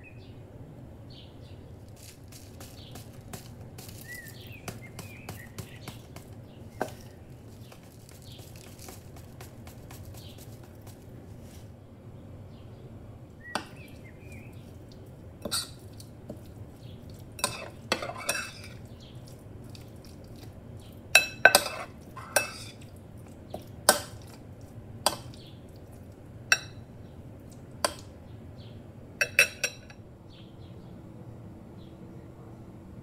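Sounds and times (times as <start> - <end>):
metal spoon clinking against glass bowl: 17.4 - 18.8, 21.2 - 22.8, 29.2 - 30.0.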